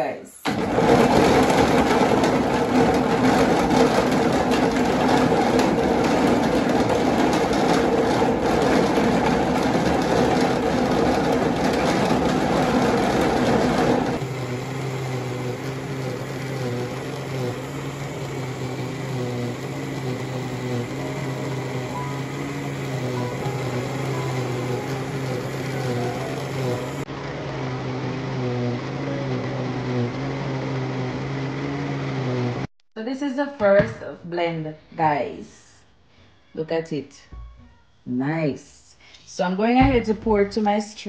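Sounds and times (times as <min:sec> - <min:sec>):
blender pulverising coconut: 0:00.4 - 0:32.7.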